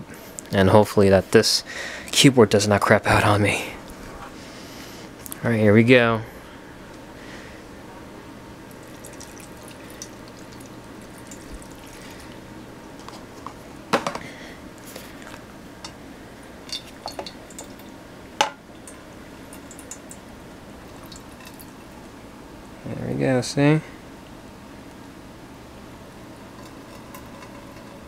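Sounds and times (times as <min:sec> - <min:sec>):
water dripping into glass dish: 0:08.7 - 0:12.0, 0:16.7 - 0:17.9, 0:18.8 - 0:20.2, 0:20.9 - 0:21.9.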